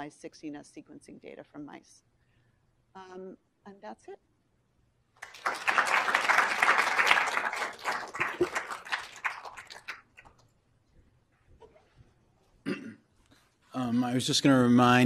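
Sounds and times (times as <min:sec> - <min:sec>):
audience applauding: 0:05.2 - 0:10.4.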